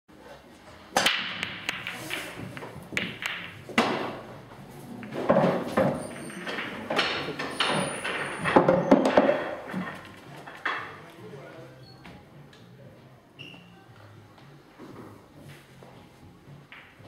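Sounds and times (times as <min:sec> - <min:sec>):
pool balls clicking and knocking: 0:00.8 - 0:11.4, 0:14.0 - 0:17.0
cue ball cracking into rack: 0:01.0 - 0:04.3.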